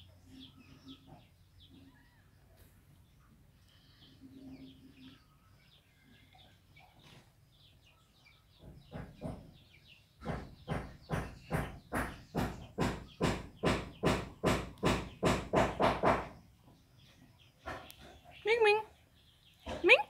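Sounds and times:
faint bird chirps: 0:00.0 - 0:09.2.

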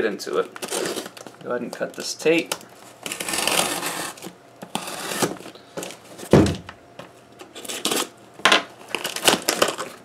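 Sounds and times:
packing tape slit and pulled: 0:00.4 - 0:05.9, 0:07.4 - 0:08.1, 0:08.8 - 0:10.0
box thump on table: 0:06.3 - 0:06.8.

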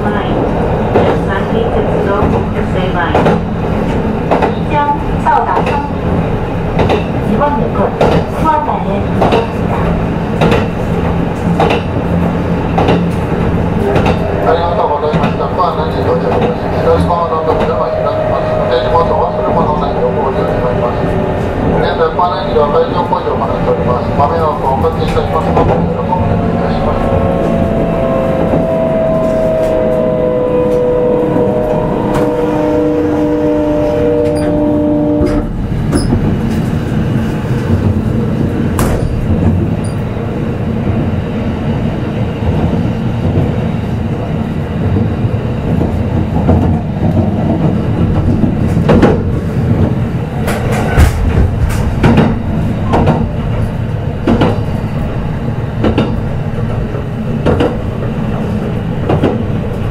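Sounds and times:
wheel and track rumble: 0:00.0 - 0:59.9
clacks over rail joints: 0:02.1 - 0:04.7, 0:05.4 - 0:05.9, 0:06.8 - 0:18.0, 0:44.8 - 0:54.8, 0:55.8 - 0:59.9
train motor whine: 0:26.2 - 0:36.2.

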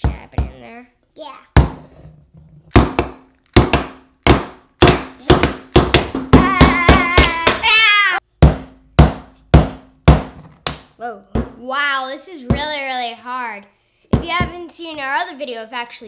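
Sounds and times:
tools knocking on hard plastic: 0:02.7 - 0:07.6, 0:14.1 - 0:14.6
child squealing: 0:06.4 - 0:08.2.

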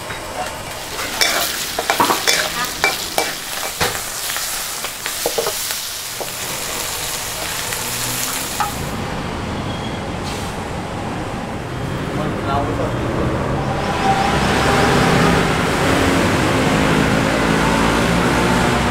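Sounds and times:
food sizzling in a wok: 0:00.0 - 0:09.0
low street traffic hum: 0:00.0 - 0:18.9
metal ladle scraping and clanking: 0:00.4 - 0:04.1.

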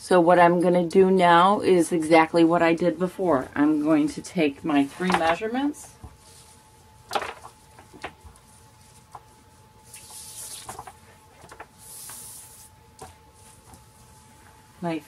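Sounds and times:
cloth or tape swishing: 0:09.8 - 0:10.8.

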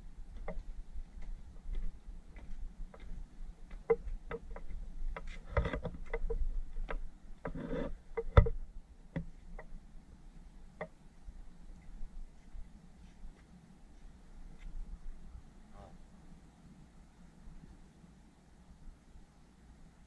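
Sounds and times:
footsteps scuffing on concrete: 0:01.2 - 0:04.2.

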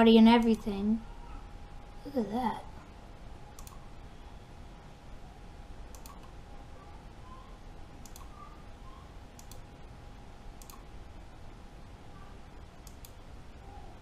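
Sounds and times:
faint steady hum: 0:00.0 - 0:14.0
computer mouse clicking: 0:03.5 - 0:03.8, 0:05.9 - 0:06.4, 0:08.0 - 0:08.4, 0:09.4 - 0:09.7, 0:10.6 - 0:10.9, 0:12.8 - 0:13.2.

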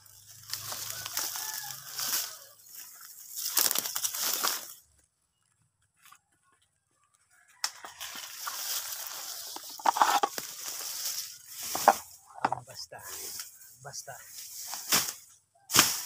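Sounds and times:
leaves and twigs rustling and crunching: 0:00.0 - 0:16.0.

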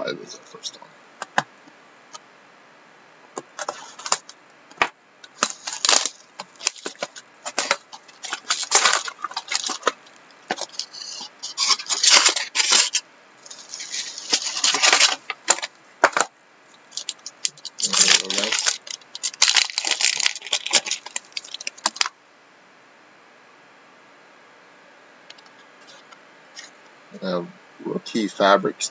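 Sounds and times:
plastic wrap crinkling: 0:03.6 - 0:22.1.

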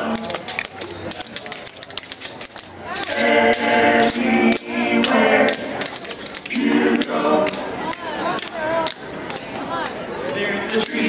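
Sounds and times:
vocal quartet singing in harmony: 0:03.0 - 0:05.8, 0:06.4 - 0:08.2, 0:10.3 - 0:11.0.

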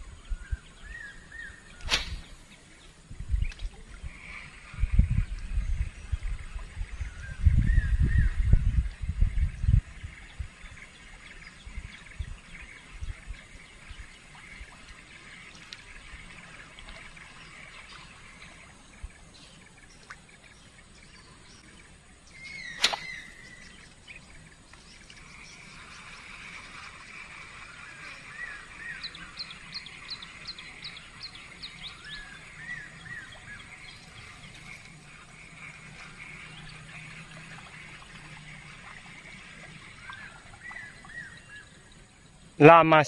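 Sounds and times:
outdoor background hiss: 0:00.0 - 0:43.0
sharp swish or click: 0:01.8 - 0:02.4, 0:22.8 - 0:23.3
quick falling bird chirps: 0:01.8 - 0:02.5, 0:22.5 - 0:23.6
wild birds calling: 0:10.2 - 0:42.6.

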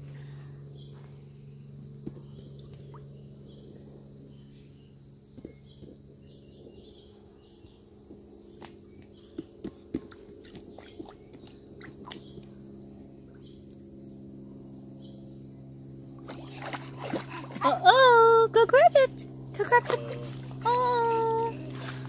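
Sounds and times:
birds chirping: 0:00.0 - 0:22.0
steady low hum: 0:00.0 - 0:22.0
small splashes in water: 0:09.9 - 0:12.5, 0:16.2 - 0:18.0, 0:19.7 - 0:22.0.

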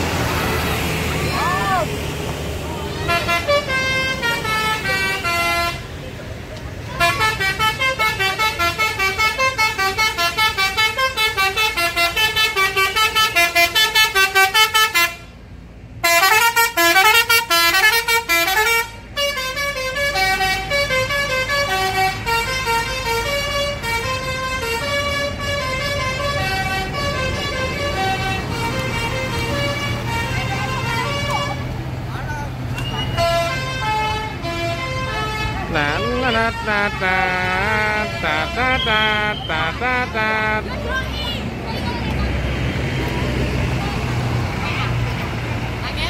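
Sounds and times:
bus engine running: 0:00.0 - 0:46.0
musical air horns playing a tune: 0:03.1 - 0:05.9, 0:06.9 - 0:15.3, 0:16.0 - 0:31.7, 0:33.2 - 0:40.7.

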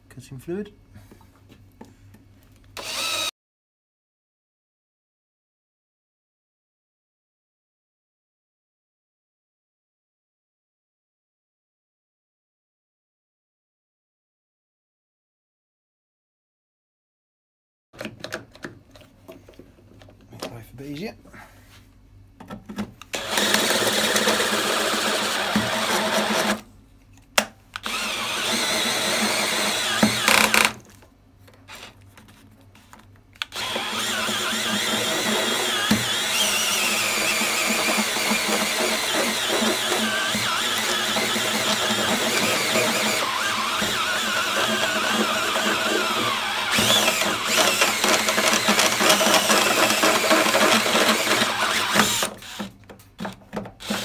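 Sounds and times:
drill cutting sheet metal: 0:02.8 - 0:03.3, 0:23.2 - 0:26.6, 0:27.8 - 0:30.8, 0:33.4 - 0:54.0.

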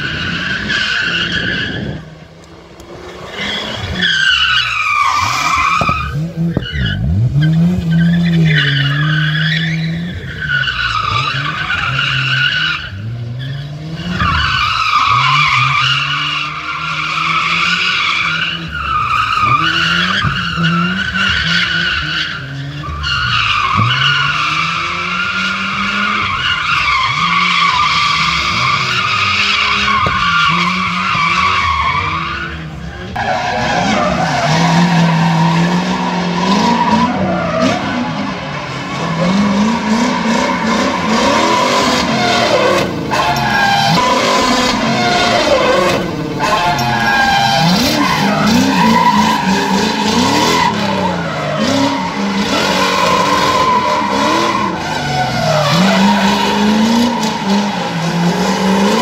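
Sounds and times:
tyres squealing: 0:03.3 - 0:59.0.

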